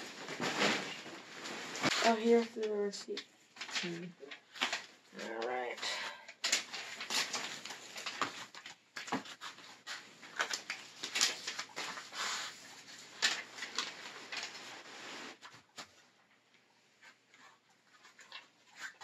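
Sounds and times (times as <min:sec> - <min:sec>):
fabric rustling and crinkling: 0:00.0 - 0:02.9, 0:03.5 - 0:05.4, 0:06.4 - 0:16.2.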